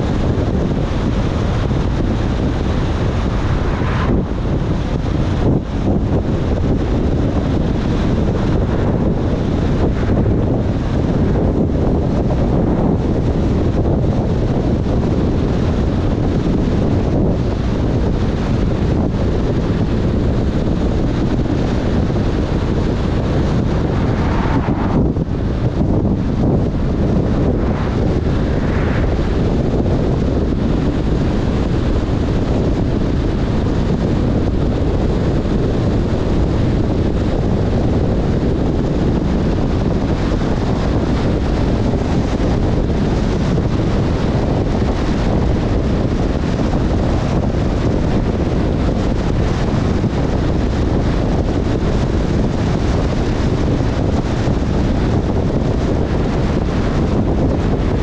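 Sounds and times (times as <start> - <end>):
wind buffeting microphone: 0.0 - 58.0
car driving on wet road: 0.9 - 5.8, 20.9 - 32.8.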